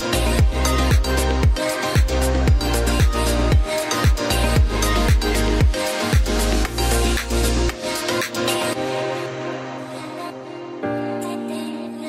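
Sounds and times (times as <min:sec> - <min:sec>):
deep kick drum: 0:00.4 - 0:06.3.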